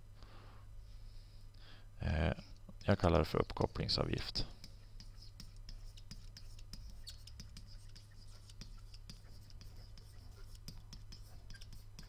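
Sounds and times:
stylus scratching and clicking: 2.4 - 12.0.

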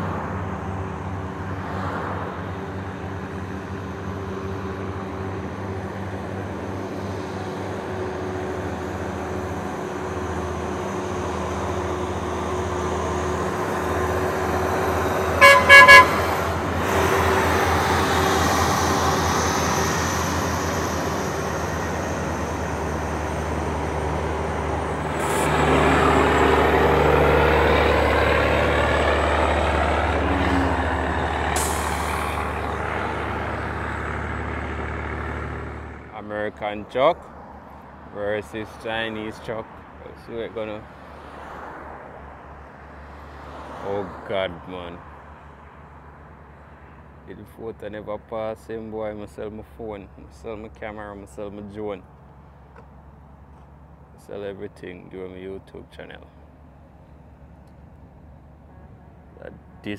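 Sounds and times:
diesel truck engine labouring: 2.4 - 37.3
truck horn toots: 15.3 - 17.5.

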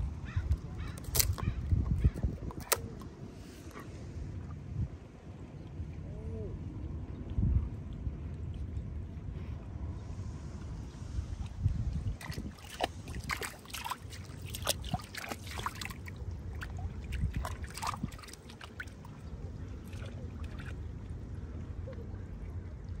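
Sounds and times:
wind rumble on microphone: 0.0 - 23.0
water splashing and sloshing: 0.4 - 4.8, 10.5 - 23.0.

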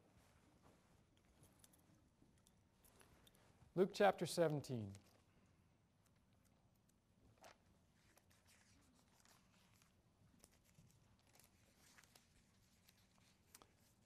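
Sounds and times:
paper pages rustling: 7.4 - 14.0.

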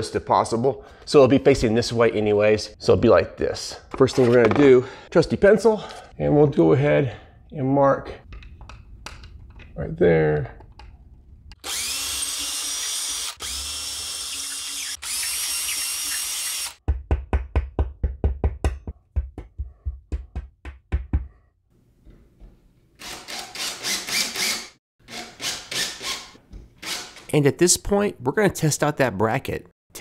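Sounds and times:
cordless drill boring: 11.5 - 16.8, 23.0 - 27.3
cordless driver running in screw: 11.6 - 16.8, 23.0 - 27.3.

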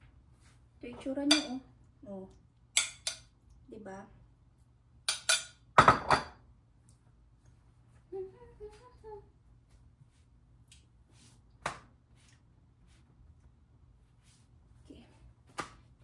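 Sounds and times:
metal kitchenware clinking: 5.1 - 6.4
person humming: 8.1 - 9.3.

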